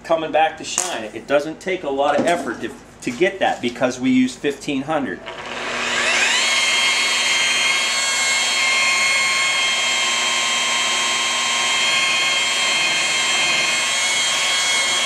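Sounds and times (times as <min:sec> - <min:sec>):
rotary polisher whining: 0:05.2 - 0:15.0.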